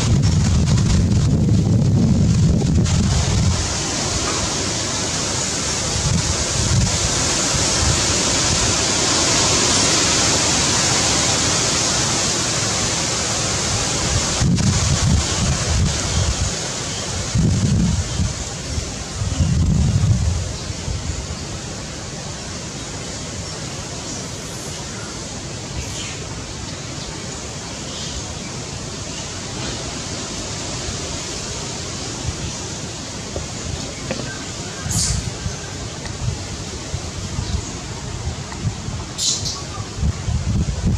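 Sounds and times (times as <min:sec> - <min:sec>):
low gusty rumbles: 0:00.0 - 0:04.8, 0:13.6 - 0:16.6, 0:17.2 - 0:21.2, 0:39.8 - 0:40.9
wind rushing over microphone: 0:00.0 - 0:22.7, 0:28.7 - 0:40.9.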